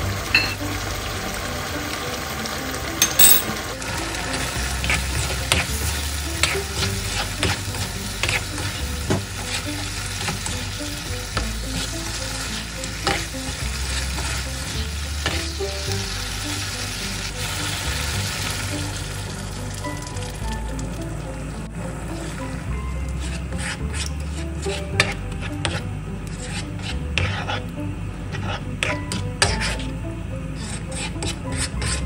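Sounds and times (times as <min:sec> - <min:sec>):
food sizzling in a wok: 0:00.0 - 0:24.0
spatula scraping a pan: 0:04.9 - 0:15.6, 0:23.2 - 0:27.7, 0:28.3 - 0:29.9, 0:30.5 - 0:32.0.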